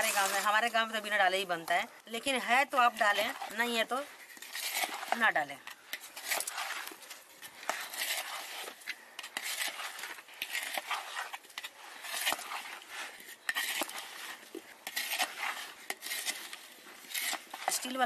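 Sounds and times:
wooden spoon stirring in metal bowl: 0.0s - 18.0s
wet scraping swishes: 6.0s - 18.0s.

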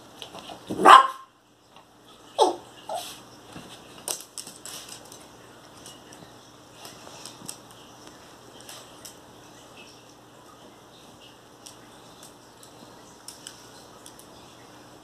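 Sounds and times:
dog claws clicking on tile: 4.0s - 6.2s.

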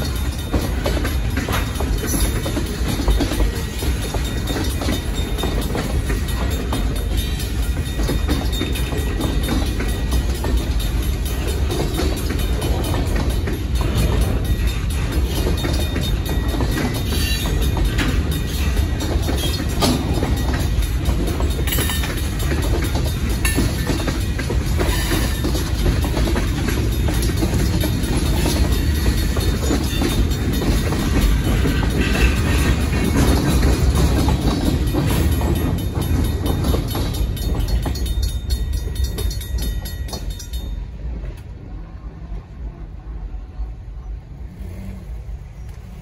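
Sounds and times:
clickety-clack over rail joints: 0.0s - 46.0s
train wheels rumbling on rail: 0.0s - 46.0s.

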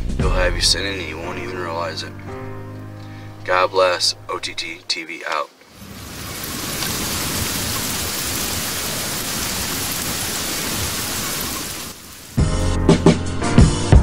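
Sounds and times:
heavy rain: 5.6s - 13.3s.

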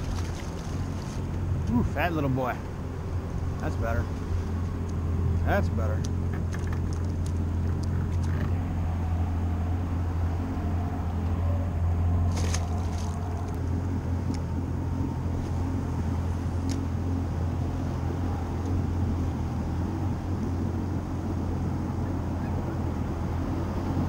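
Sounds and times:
water splash: 0.0s - 1.4s, 12.2s - 13.6s
low engine hum: 0.0s - 24.0s.

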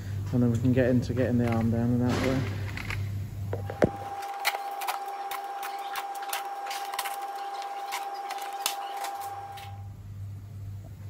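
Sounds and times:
motor whine: 2.6s - 10.7s
clicks and clatters: 3.6s - 9.7s.

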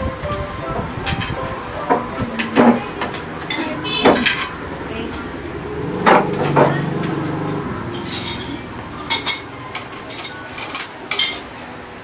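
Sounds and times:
metal cutlery clinking on plates: 2.4s - 4.6s, 8.0s - 11.7s.

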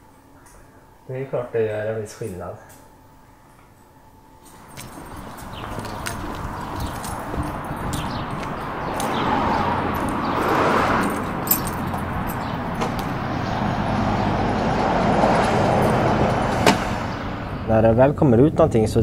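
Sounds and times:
passing traffic: 4.5s - 19.0s
vehicle engine humming: 4.5s - 19.0s.

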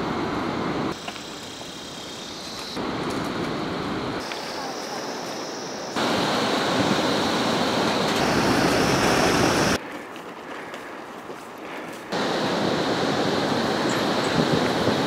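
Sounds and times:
stream water rushing and splashing: 6.0s - 9.8s.

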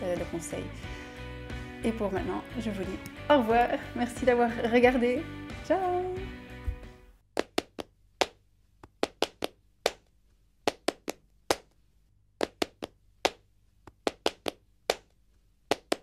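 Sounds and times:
sharp dry percussive taps: 7.4s - 10.0s, 10.7s - 11.7s, 12.4s - 15.1s.

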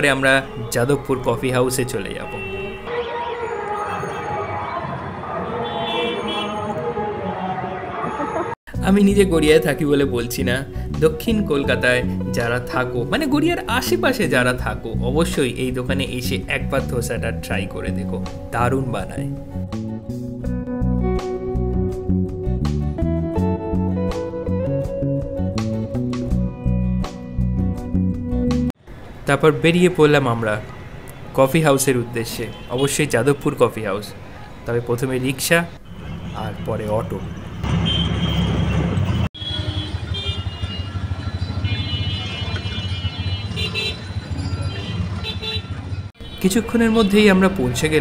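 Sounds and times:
city traffic: 0.0s - 18.7s, 25.2s - 48.0s
guitar music with bass line: 9.2s - 28.7s
auto-rickshaw engine rumbling: 35.7s - 47.9s.

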